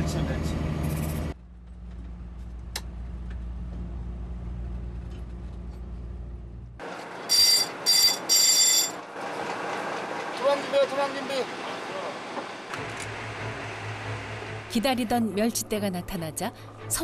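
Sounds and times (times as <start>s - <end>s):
boat engine humming: 0.0s - 17.0s
electric alarm bell ringing: 7.3s - 9.0s.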